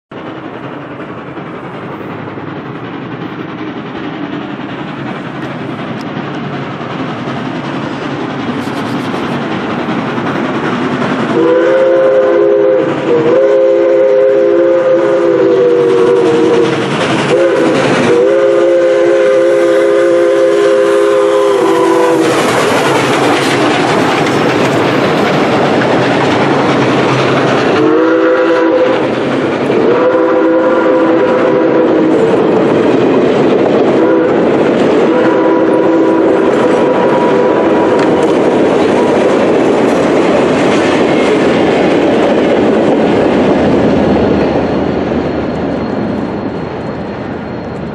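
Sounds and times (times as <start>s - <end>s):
loud rush of steam: 0.1s - 47.9s
train wheels over rail joints: 0.1s - 47.9s
steam locomotive chime whistle: 11.3s - 23.3s, 27.7s - 32.8s, 33.9s - 39.4s, 44.5s - 47.9s.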